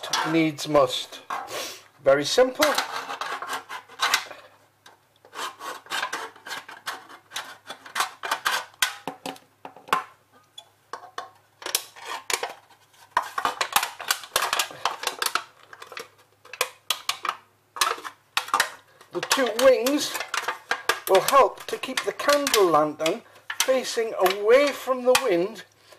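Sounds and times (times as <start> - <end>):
thin metal can crinkling and clicking: 6.0 - 25.8
blade slitting metal can: 17.0 - 25.4.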